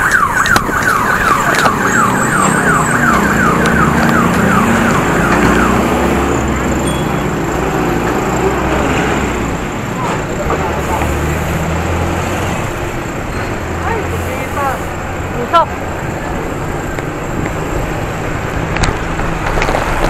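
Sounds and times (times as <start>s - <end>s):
electronic siren whooping: 0.0s - 7.4s
road and wind noise: 0.0s - 20.0s.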